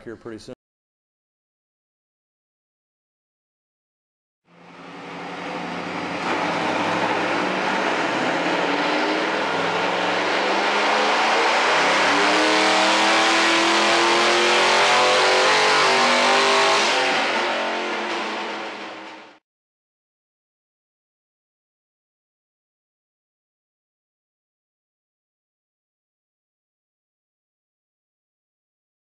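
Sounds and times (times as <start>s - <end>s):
car engine revving under load: 4.5s - 19.4s.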